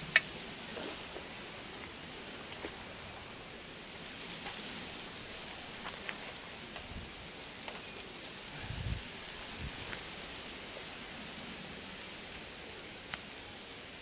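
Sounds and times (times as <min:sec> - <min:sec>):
wind rustling through reeds: 0:00.0 - 0:14.0
faint ticks: 0:12.3 - 0:13.3.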